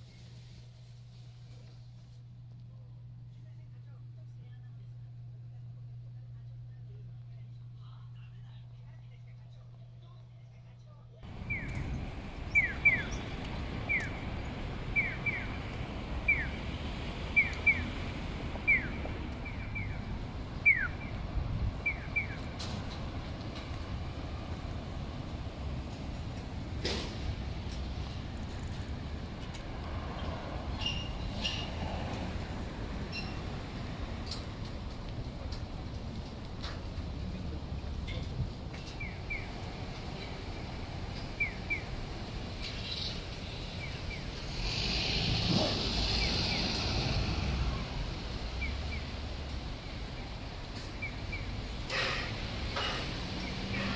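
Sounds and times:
low traffic rumble: 0.0s - 53.9s
pedestrian crossing signal chirps: 11.3s - 16.6s, 17.3s - 18.0s, 18.6s - 22.5s, 33.0s - 33.6s.

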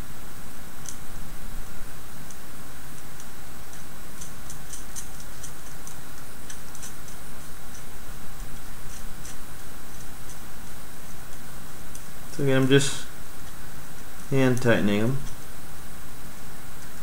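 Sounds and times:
background hiss and hum: 0.0s - 17.0s
small metal screws clicking: 3.2s - 7.9s.

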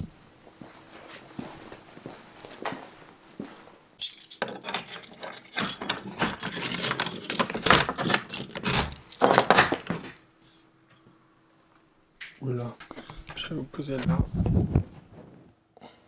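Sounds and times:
key working in door lock: 4.0s - 10.2s
keys jangling: 4.0s - 11.1s.

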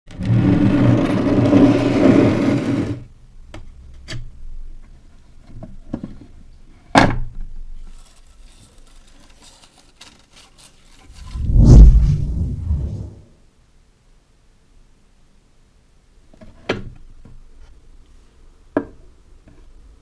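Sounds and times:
loud rumbling: 11.1s - 13.3s.

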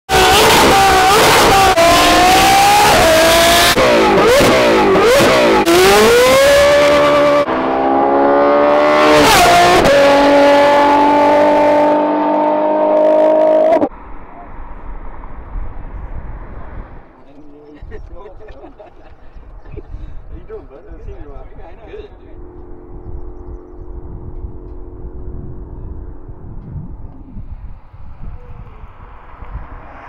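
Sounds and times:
car engines revving and accelerating: 0.1s - 17.2s, 21.0s - 30.0s.

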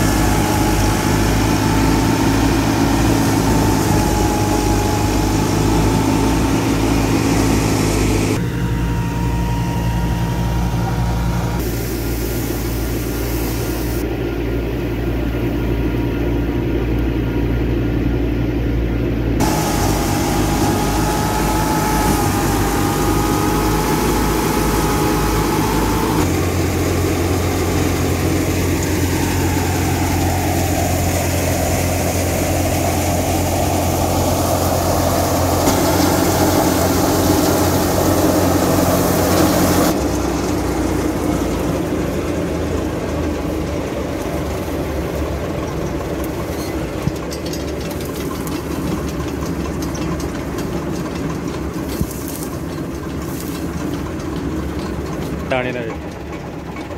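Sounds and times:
thin steady whine: 0.0s - 40.1s
diesel engine and threshing machinery drone: 0.0s - 56.9s.

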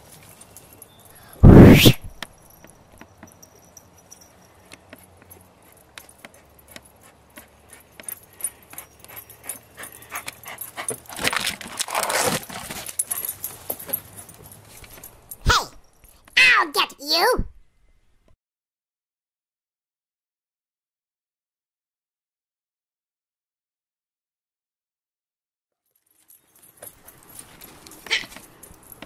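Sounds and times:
brief rush of noise: 1.4s - 2.2s
dog panting and whimpering: 5.3s - 11.5s.

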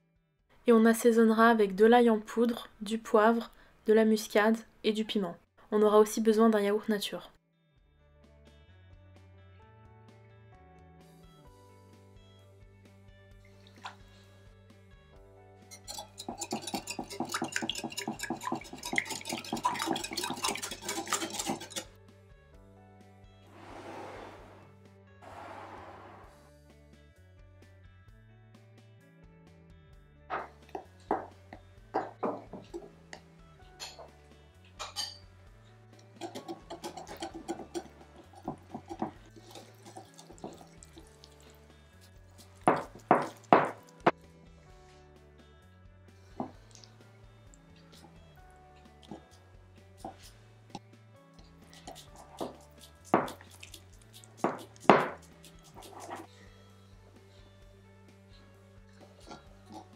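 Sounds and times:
soft background music: 0.5s - 59.9s
whisk clinking in glass bowl: 15.7s - 21.9s, 34.8s - 35.2s, 36.2s - 40.8s.

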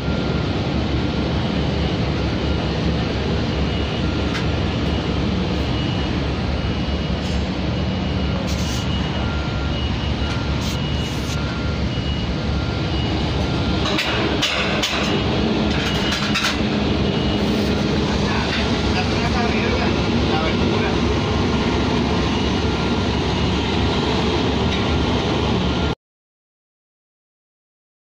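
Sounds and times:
heavy machinery running: 0.0s - 26.0s
short repeated beeps: 3.7s - 19.8s.

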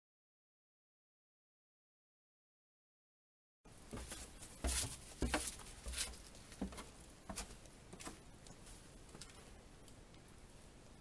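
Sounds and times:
footsteps on debris: 3.9s - 8.2s.

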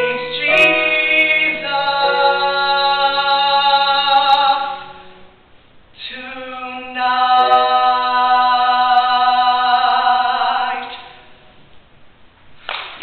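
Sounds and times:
man singing long note: 0.0s - 5.1s, 6.2s - 10.8s.

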